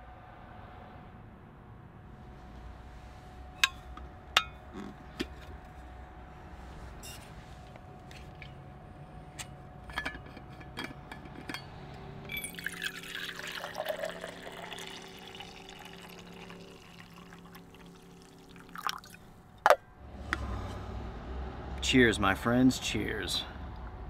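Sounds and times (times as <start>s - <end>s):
coffee pouring into a tumbler: 12.3s - 19.2s.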